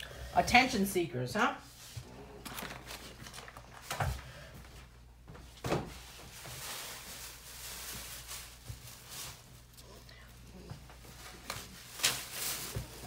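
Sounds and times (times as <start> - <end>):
soft rustling: 5.4 - 13.0.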